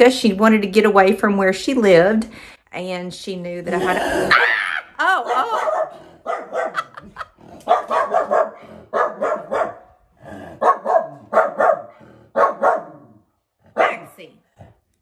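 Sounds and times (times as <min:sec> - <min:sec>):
small dog barking: 0:05.2 - 0:07.0, 0:07.7 - 0:09.9, 0:10.6 - 0:13.1, 0:13.8 - 0:14.3.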